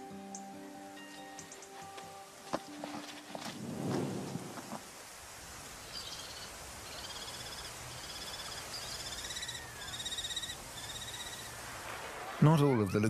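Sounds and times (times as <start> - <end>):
outdoor hiss: 0.0 - 13.0
kestrel trilled calls: 5.9 - 11.6.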